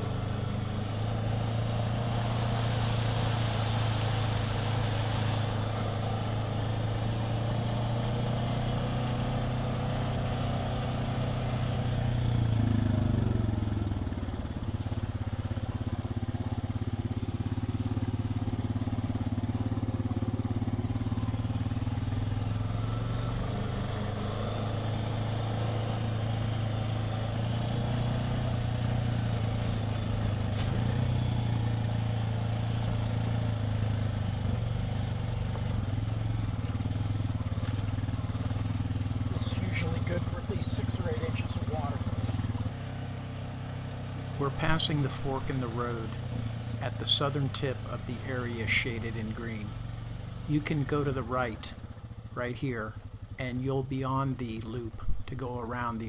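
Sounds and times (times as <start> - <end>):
utv engine running: 0.0 - 56.0.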